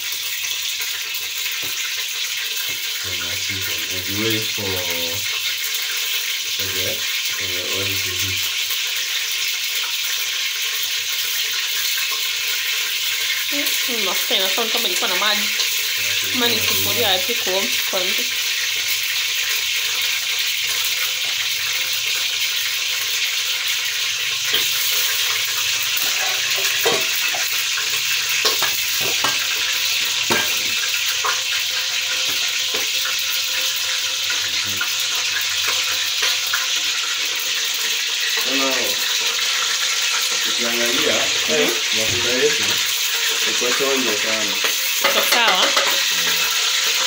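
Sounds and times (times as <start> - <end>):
hot oil sizzling: 0.0 - 47.0.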